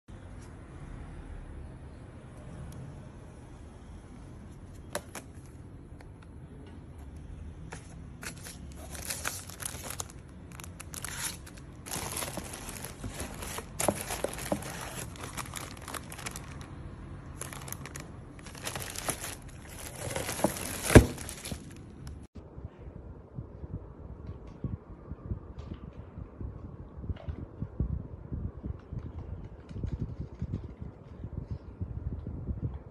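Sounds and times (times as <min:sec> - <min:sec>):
plastic bags crinkling: 0:08.2 - 0:22.3.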